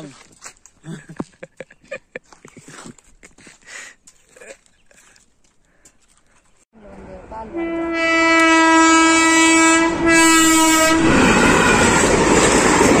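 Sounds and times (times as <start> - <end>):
air horn blasting: 7.5 - 12.2.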